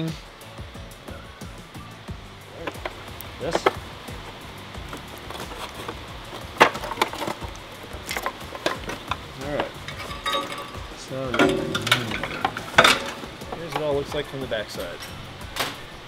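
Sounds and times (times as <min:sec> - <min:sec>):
scraping and rustling: 0:02.6 - 0:15.2
sheet metal knocks and rattles: 0:08.1 - 0:14.3.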